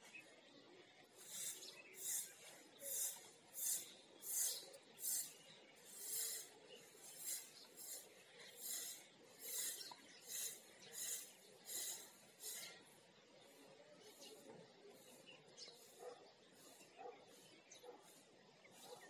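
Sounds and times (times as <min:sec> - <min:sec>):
faint rasping hiss: 0:01.2 - 0:12.8.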